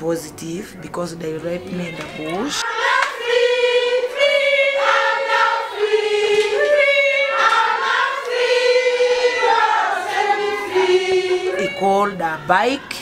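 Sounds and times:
women singing together: 1.7s - 12.2s.

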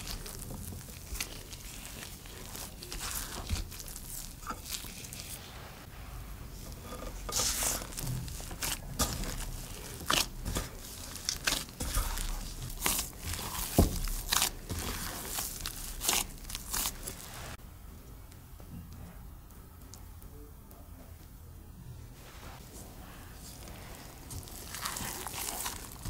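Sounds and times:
hands kneading sticky dough: 0.0s - 17.6s, 22.2s - 26.0s
dough thump: 7.3s - 17.3s.

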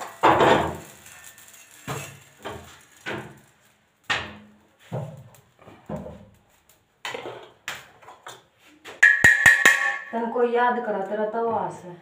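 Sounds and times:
metal griddle and plate clanking: 0.0s - 6.3s.

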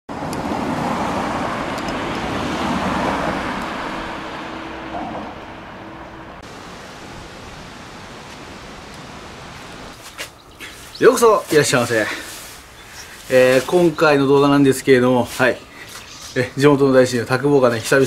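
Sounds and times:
car driving past: 0.1s - 8.9s
steady road background: 0.1s - 18.0s.

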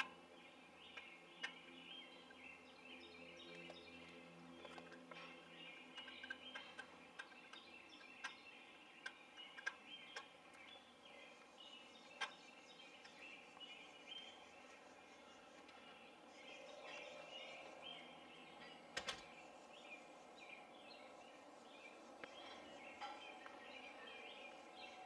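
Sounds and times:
small birds chirping: 0.0s - 25.0s
sharp clicks: 9.0s - 10.6s.

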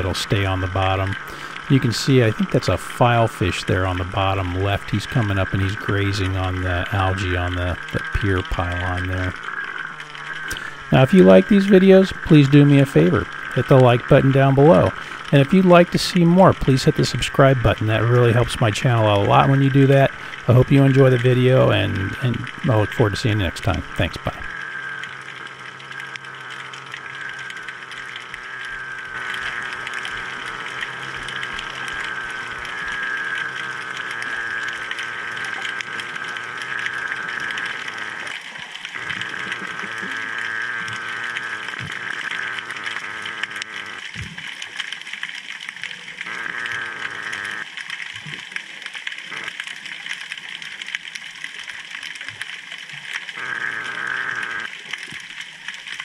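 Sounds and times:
wavering high whine: 0.0s - 44.4s, 45.8s - 47.7s, 53.4s - 54.7s
underwater crackling hiss: 0.0s - 56.0s.

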